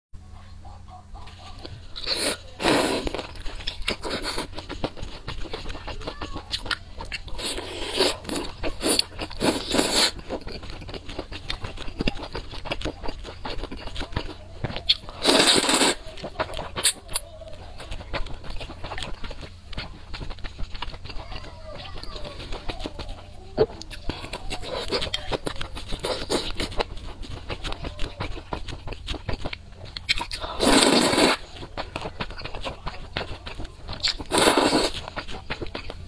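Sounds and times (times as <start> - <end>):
steady low hum: 0.2 - 36.0
chewing and wet mouth clicks: 3.1 - 36.0
loud noodle slurps: 7.4 - 10.2, 15.2 - 16.0, 30.4 - 31.4, 34.2 - 35.0.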